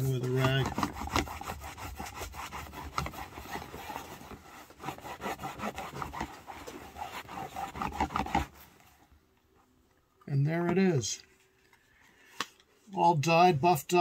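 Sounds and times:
cloth rubbing on leather: 0:00.0 - 0:09.0.

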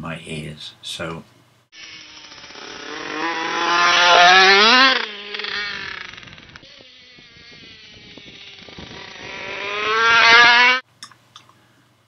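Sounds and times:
motocross bike engine revving by: 0:01.8 - 0:10.8.

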